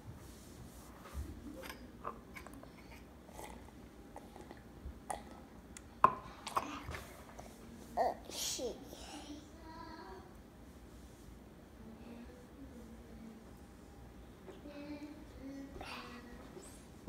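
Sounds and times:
toddler chewing cereal: 2.2 - 5.4.

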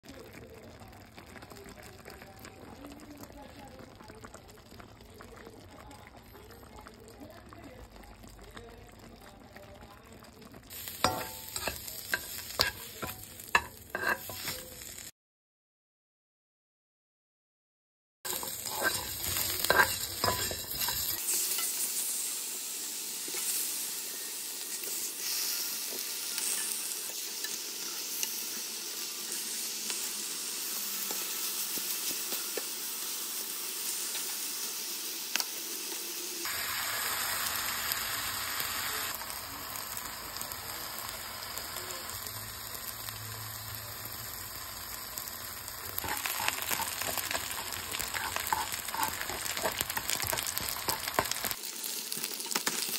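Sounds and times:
food sizzling in a frying pan: 0.0 - 15.1, 18.3 - 52.9
tongs clicking: 18.3 - 21.1, 46.0 - 51.5.

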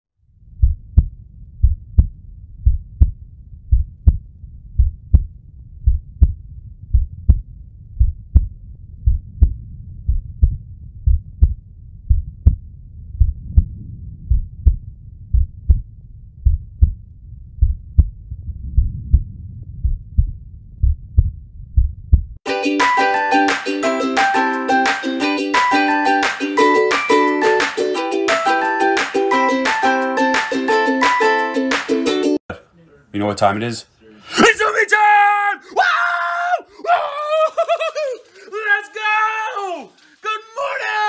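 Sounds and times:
faint low hum: 0.2 - 22.4
heartbeat double thumps: 0.4 - 22.4.

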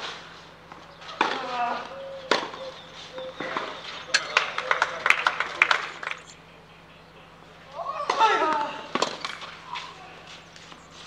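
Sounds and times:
racket hitting tennis ball: 0.0 - 1.6, 2.3 - 6.0, 8.1 - 10.0.

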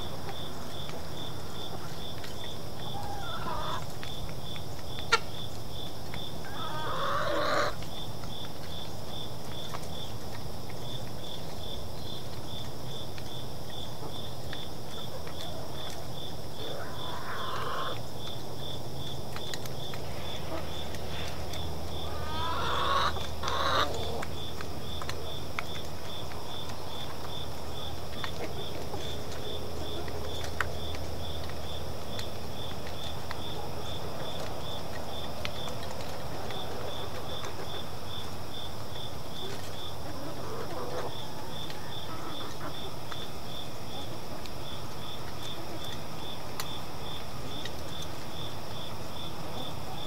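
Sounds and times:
high insect hum: 0.0 - 50.0
insects chirping: 0.0 - 50.0
hen calling: 2.9 - 3.8, 6.5 - 7.8, 16.6 - 18.0, 22.0 - 24.2.

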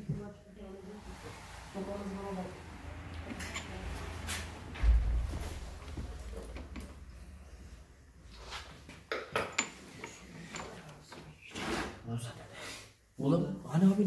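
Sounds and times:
low thump: 4.6 - 7.9.

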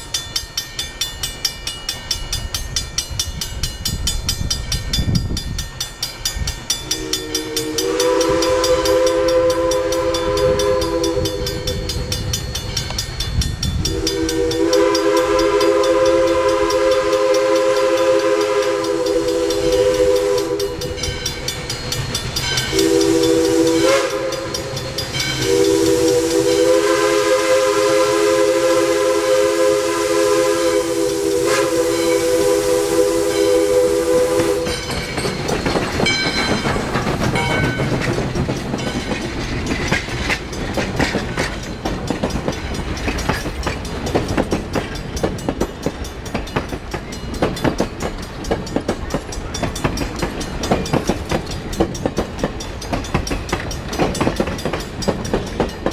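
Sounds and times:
train running: 0.0 - 55.9
steam whistle blasts: 6.8 - 12.1, 13.8 - 21.1, 22.6 - 35.0.

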